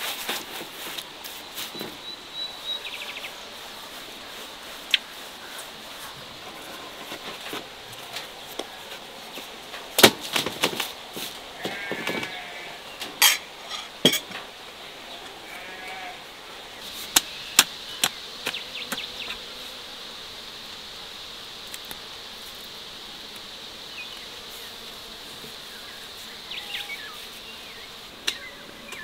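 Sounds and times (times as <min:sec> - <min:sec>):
livestock bleating: 0:11.6 - 0:12.9, 0:15.3 - 0:16.2.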